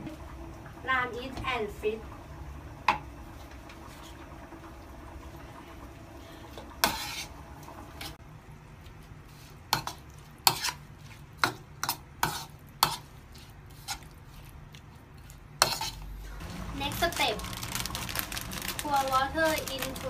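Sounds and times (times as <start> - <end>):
metal spoon stirring in ceramic bowl: 9.4 - 16.0.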